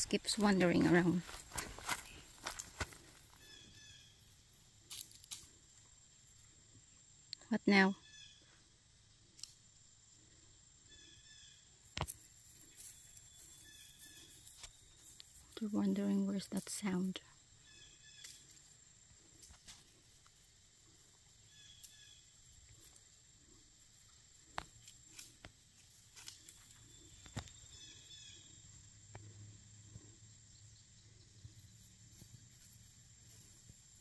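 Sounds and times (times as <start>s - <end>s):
faint bird chirps: 3.4s - 4.3s, 10.8s - 11.7s, 17.6s - 18.5s, 21.5s - 22.3s, 26.8s - 28.8s.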